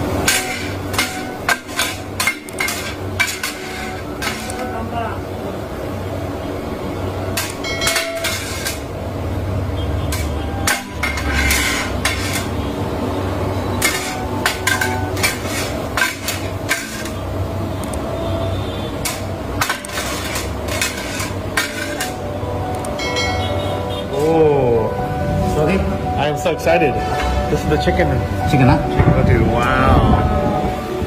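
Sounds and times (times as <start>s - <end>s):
metal blades clattering on griddle: 0.2s - 4.6s, 7.3s - 8.9s, 10.1s - 12.5s, 13.8s - 17.2s, 19.0s - 22.2s.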